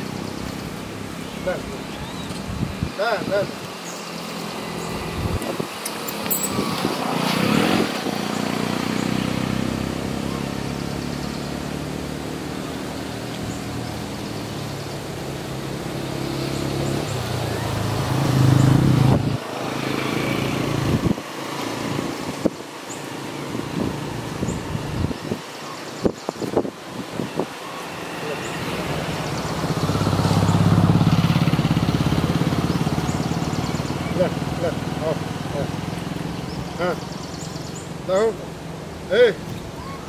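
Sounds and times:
vehicle engine running: 28.2 - 37.9.

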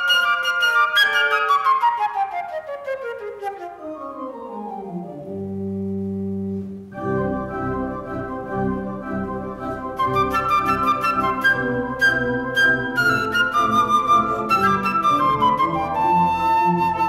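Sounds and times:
organ playing: 3.8 - 17.0.

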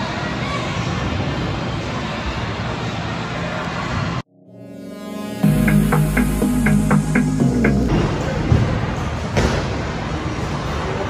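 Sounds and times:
indoor hall background noise: 0.0 - 11.0
background music sustained notes: 4.3 - 8.2.

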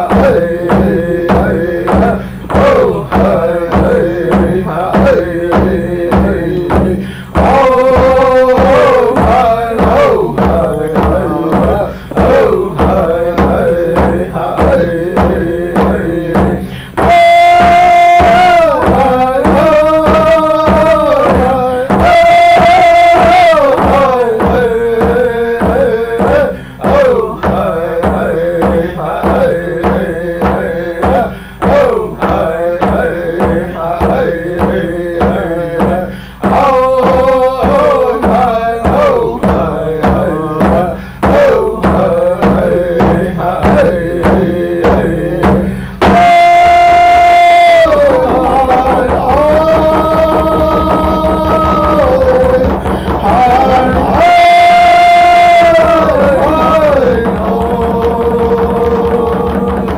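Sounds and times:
men singing: 0.0 - 59.9
steady drumbeat: 0.0 - 59.9.

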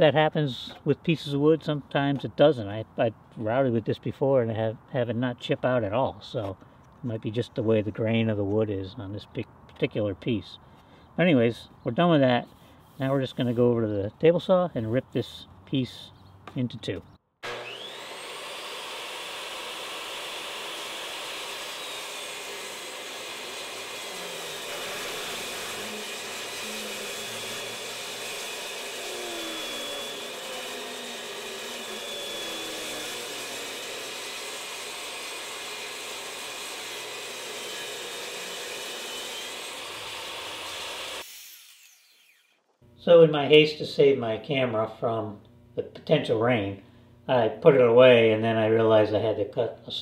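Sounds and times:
table saw ripping a board: 17.4 - 42.8.

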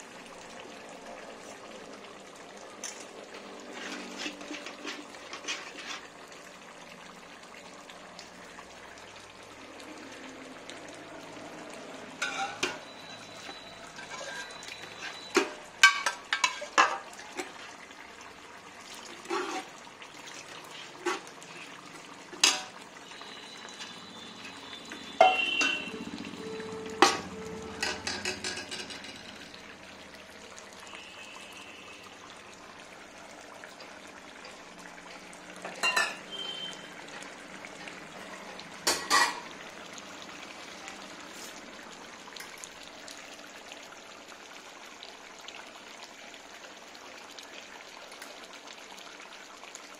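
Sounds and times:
low sizzle from pot: 0.0 - 49.9
ladle knocking and scraping pot: 3.7 - 6.1, 12.2 - 12.8, 13.4 - 17.6, 19.2 - 19.7, 20.9 - 21.3, 27.0 - 29.4.

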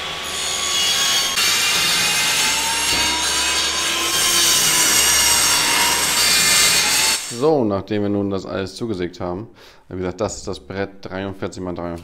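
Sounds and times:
table saw cutting board: 0.0 - 7.4.

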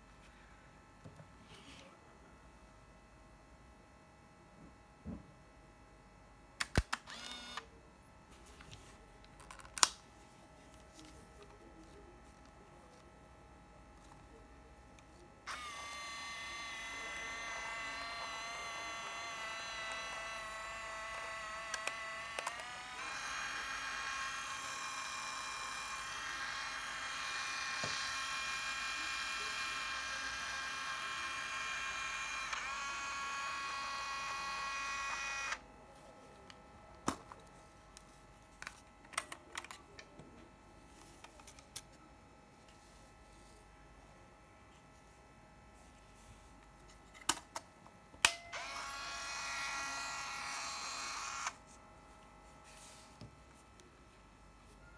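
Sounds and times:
high-pitched motor whine: 15.5 - 35.6, 48.5 - 51.6.

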